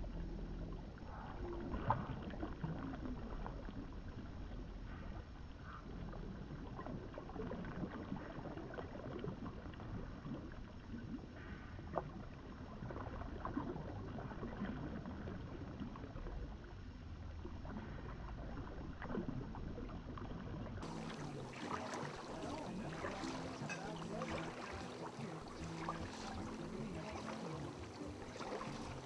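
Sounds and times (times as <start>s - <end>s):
small waves lapping: 17.5s - 29.0s
water slaps: 20.8s - 29.0s.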